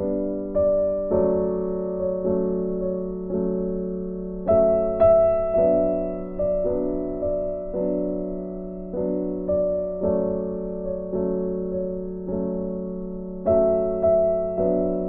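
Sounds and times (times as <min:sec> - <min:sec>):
slow gentle piano music: 0:00.0 - 0:15.0.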